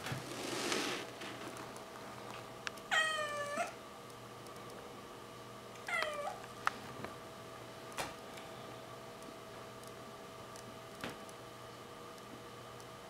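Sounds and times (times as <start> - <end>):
kitten meowing: 2.9 - 3.8, 5.9 - 6.4.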